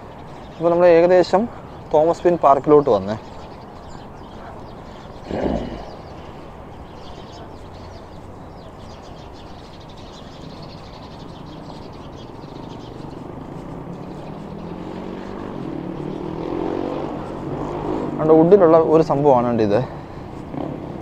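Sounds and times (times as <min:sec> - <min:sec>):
city traffic hum: 0:00.0 - 0:21.0.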